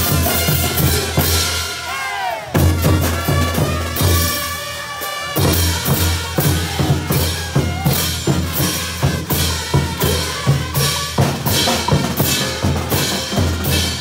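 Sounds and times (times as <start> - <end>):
bass drums: 0.0 - 1.6, 5.4 - 14.0
snare drum: 0.0 - 1.7, 2.6 - 4.5, 5.1 - 14.0
trumpets and low brass: 0.0 - 14.0.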